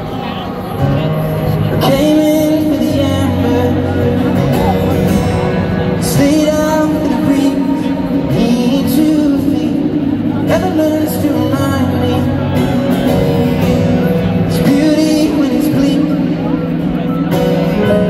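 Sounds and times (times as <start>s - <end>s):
person singing: 1.6s - 4.9s, 6.0s - 13.1s, 14.3s - 18.0s.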